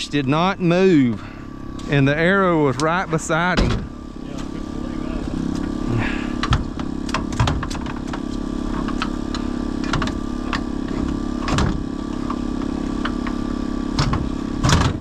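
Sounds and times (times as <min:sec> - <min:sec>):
small engine humming: 0:00.0 - 0:15.0
knocks and clatters on boat deck: 0:06.4 - 0:08.2, 0:09.8 - 0:11.8, 0:14.0 - 0:15.0.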